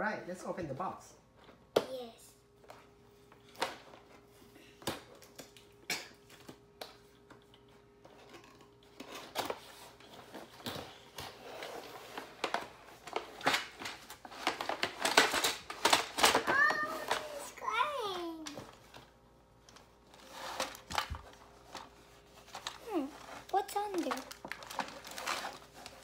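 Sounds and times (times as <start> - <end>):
packaging rustling and crinkling: 8.2 - 17.5, 19.7 - 26.0.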